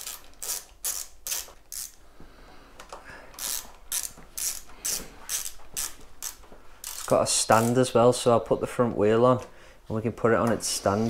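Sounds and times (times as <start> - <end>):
ratchet tool clicking: 0.0 - 2.0, 3.4 - 7.7.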